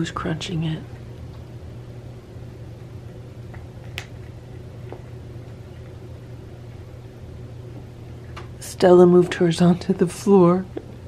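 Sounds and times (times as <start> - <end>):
steady low hum: 0.0 - 11.0
cat chewing: 3.4 - 6.1.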